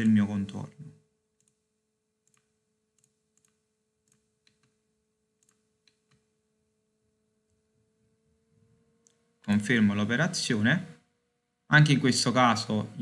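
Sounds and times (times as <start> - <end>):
faint steady hum: 0.0 - 13.0
faint computer mouse clicks: 1.4 - 1.6, 2.2 - 4.8, 5.4 - 6.3.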